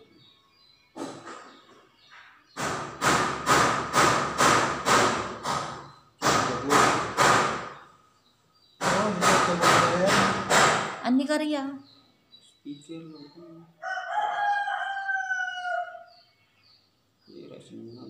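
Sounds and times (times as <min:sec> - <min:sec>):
heavy thumping beat from phone: 0:02.6 - 0:07.7, 0:08.8 - 0:11.0.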